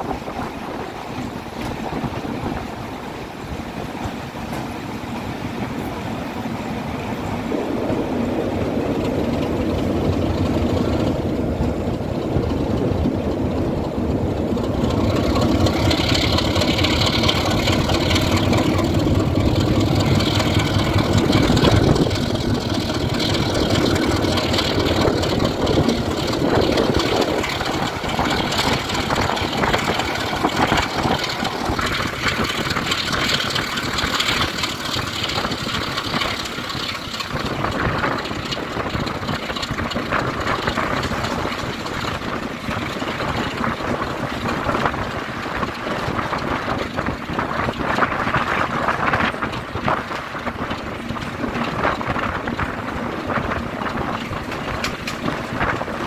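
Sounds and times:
diesel locomotive engine running: 0:00.0 - 0:56.0
wind and rail noise: 0:00.0 - 0:56.0.

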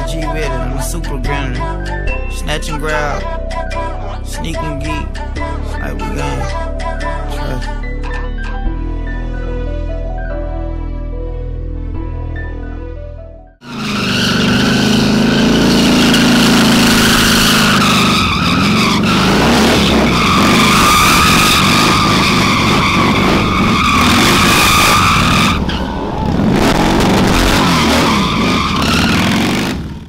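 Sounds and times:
tyre squealing: 0:13.6 - 0:29.9
motorcycle engine revving high: 0:13.6 - 0:30.0.

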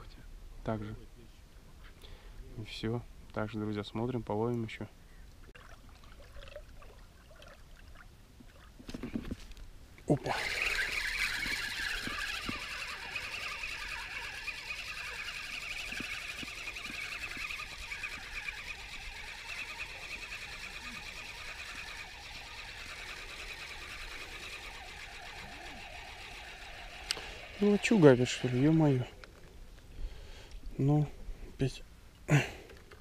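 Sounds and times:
fishing reel gears whirring: 0:10.2 - 0:29.1.

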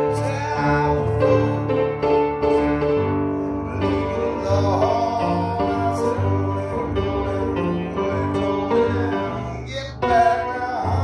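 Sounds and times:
band music with singing: 0:03.8 - 0:11.0.

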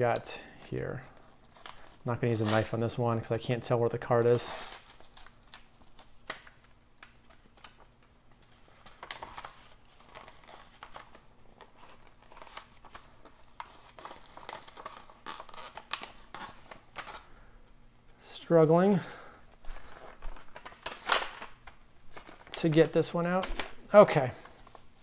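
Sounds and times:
paper envelope tearing and rustling: 0:08.4 - 0:17.3, 0:19.7 - 0:22.8.

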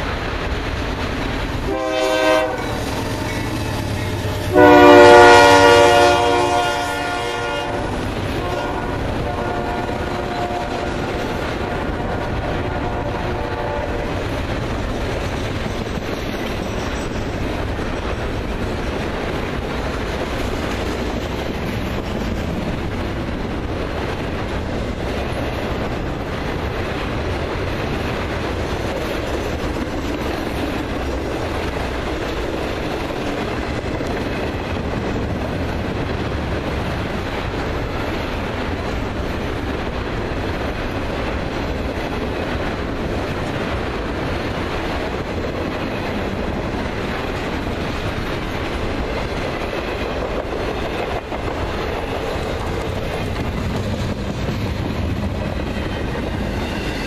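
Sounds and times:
train wheels clattering on rails: 0:00.0 - 0:57.0
locomotive horn: 0:01.7 - 0:14.2.

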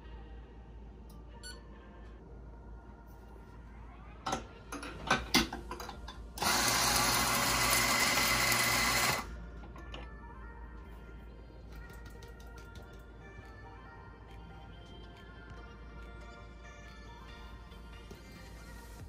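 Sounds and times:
coffee grinder running: 0:06.4 - 0:09.3.

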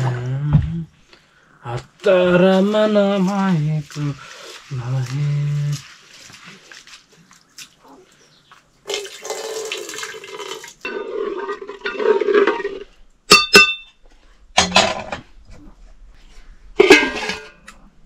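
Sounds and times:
water sloshing in a pot: 0:02.6 - 0:12.8
metal ladle clinking on pot: 0:16.8 - 0:17.6
pot lid clanking: 0:16.8 - 0:17.6.

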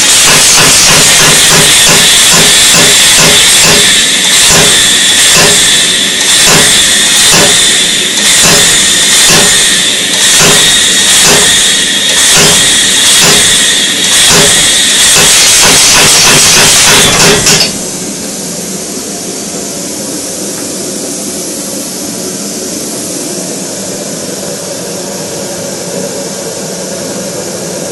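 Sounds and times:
air hammer blows: 0:00.0 - 0:18.0
forge burner rushing: 0:00.0 - 0:18.6
air exhaust hissing: 0:00.0 - 0:27.9.

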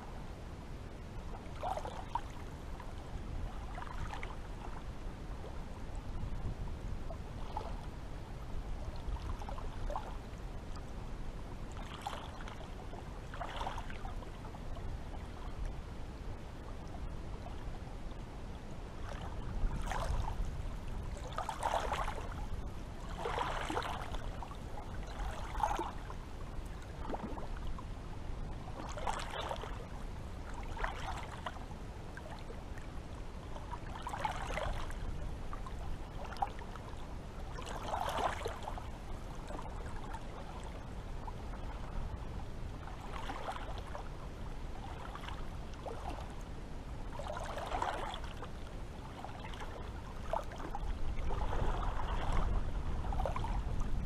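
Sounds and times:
small waves lapping and splashing: 0:00.0 - 0:54.0
steady low rumble: 0:14.0 - 0:23.3, 0:48.3 - 0:54.0.

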